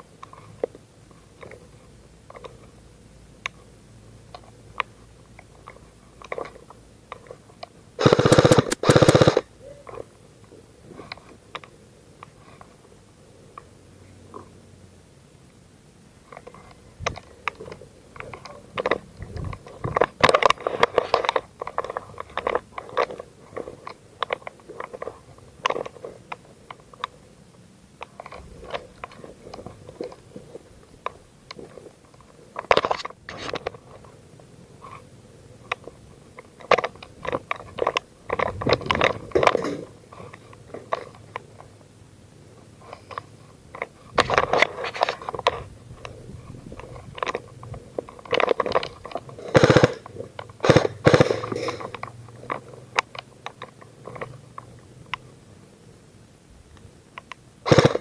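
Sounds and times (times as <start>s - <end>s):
gear knocking: 8.0s - 9.4s, 49.5s - 52.0s, 57.7s - 58.0s.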